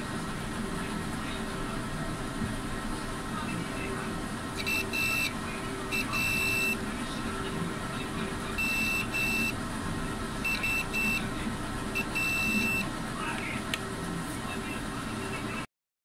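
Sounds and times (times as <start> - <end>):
multimeter continuity beeping: 4.5 - 6.9, 8.4 - 9.6, 10.4 - 12.9.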